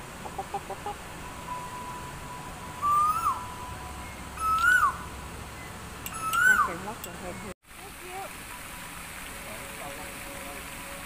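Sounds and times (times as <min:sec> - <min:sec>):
loud whistled call: 0:02.8 - 0:06.8.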